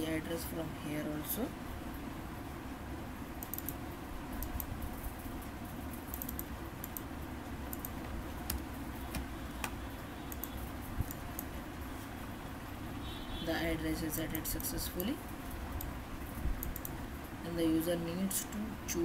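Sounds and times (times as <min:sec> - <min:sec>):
low background noise: 0:00.0 - 0:19.0
computer keyboard clicks: 0:03.4 - 0:03.8, 0:06.1 - 0:07.1, 0:07.7 - 0:11.5, 0:16.6 - 0:17.0
computer mouse clicks: 0:03.4 - 0:03.8, 0:04.4 - 0:04.7, 0:06.1 - 0:07.1, 0:07.7 - 0:11.5, 0:16.6 - 0:17.0.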